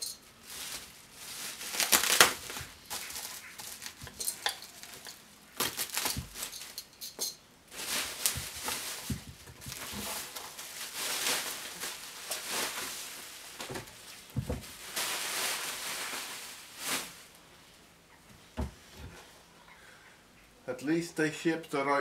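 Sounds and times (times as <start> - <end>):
bubble wrap and plastic crinkling: 0.0 - 7.0, 7.7 - 17.4.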